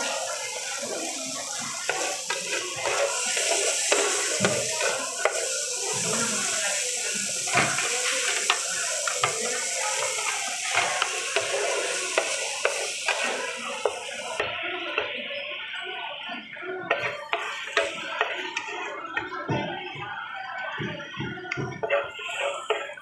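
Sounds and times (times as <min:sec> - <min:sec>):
noodles sizzling in a pan: 0:00.0 - 0:23.0
utensils scraping a pan: 0:01.8 - 0:06.5, 0:21.8 - 0:23.0.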